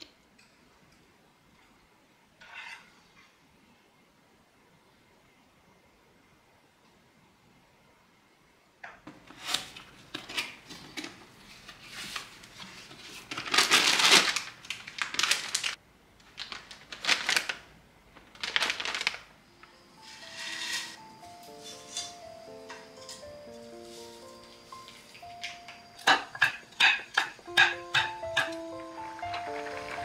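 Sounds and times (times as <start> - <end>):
packaging rustling and crinkling: 9.4 - 19.4
soft music: 19.4 - 30.0.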